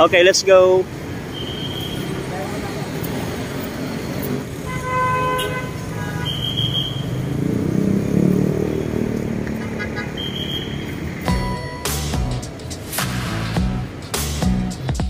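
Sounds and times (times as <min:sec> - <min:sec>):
vehicle passing: 0:00.0 - 0:14.9
street traffic: 0:00.0 - 0:15.0
car horn honking: 0:01.3 - 0:02.2, 0:04.6 - 0:07.2, 0:09.5 - 0:11.6.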